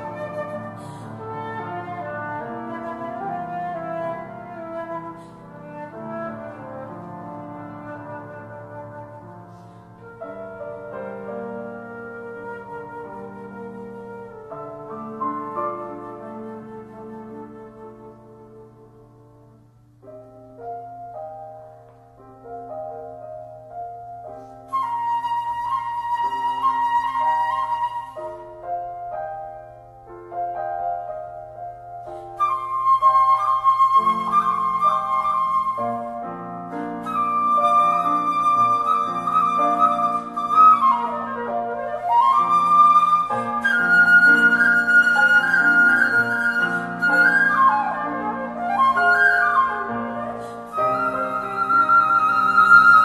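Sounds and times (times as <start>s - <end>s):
flute long high note: 0.0s - 19.0s, 24.7s - 28.8s, 32.1s - 53.0s
soft piano chords: 0.0s - 53.0s.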